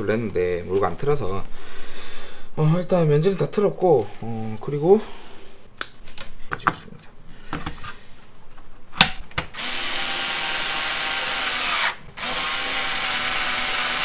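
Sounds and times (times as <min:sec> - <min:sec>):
cordless drill driving screw: 0:09.5 - 0:14.0.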